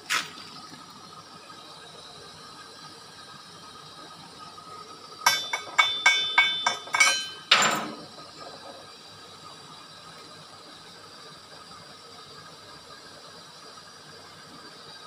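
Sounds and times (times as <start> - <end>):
chipping hammer striking steel: 5.3 - 8.0.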